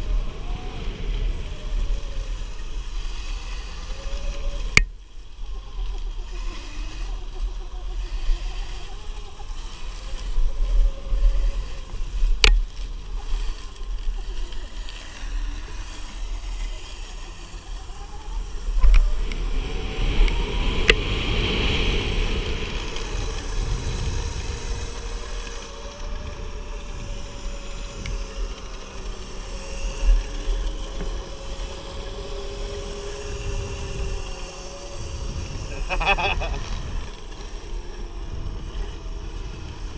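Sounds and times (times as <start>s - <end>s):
wind buffeting microphone: 0.0s - 4.8s, 17.8s - 39.9s
electric motor whine: 0.0s - 39.9s.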